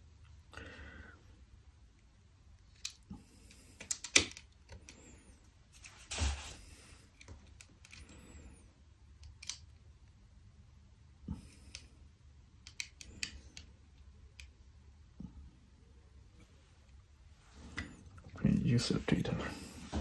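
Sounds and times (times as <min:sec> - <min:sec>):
small parts clicking: 0:02.6 - 0:03.1, 0:07.1 - 0:08.2, 0:09.1 - 0:09.8, 0:12.6 - 0:13.7.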